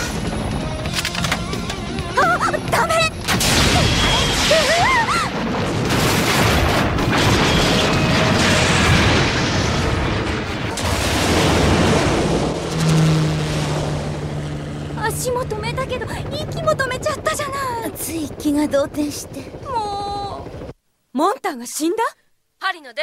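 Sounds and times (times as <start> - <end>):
rumbling explosion blasts: 3.3 - 14.3
steady low hum: 11.2 - 21.0
wavering high whine: 12.5 - 16.0.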